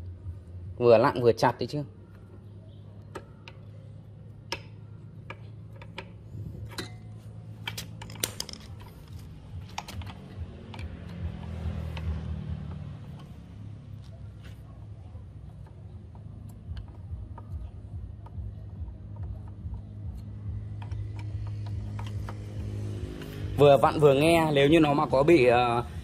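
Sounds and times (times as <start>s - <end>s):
low steady hum: 1.9s - 26.0s
wrench clicking and tapping on metal: 4.4s - 13.5s, 15.5s - 23.4s.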